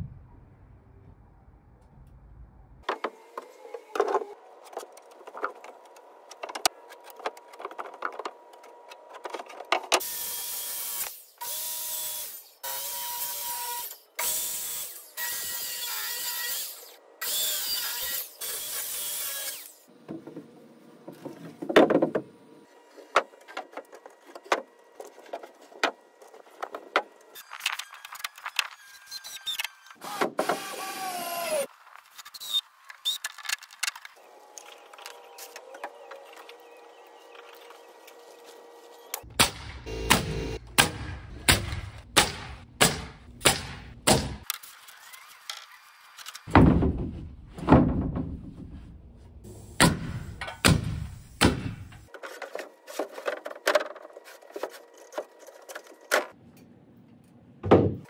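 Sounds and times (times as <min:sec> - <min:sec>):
power saw cutting boards: 0:09.9 - 0:19.9, 0:24.6 - 0:31.7, 0:34.1 - 0:40.8.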